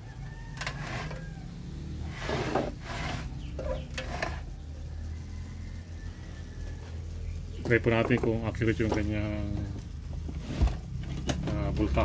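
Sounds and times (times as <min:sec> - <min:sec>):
metal box scraping on wood: 0:00.6 - 0:01.3, 0:02.0 - 0:04.5, 0:10.3 - 0:11.2.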